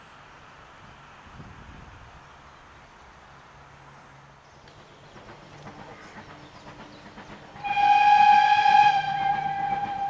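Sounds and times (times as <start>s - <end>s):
steam locomotive whistle: 7.6s - 10.0s.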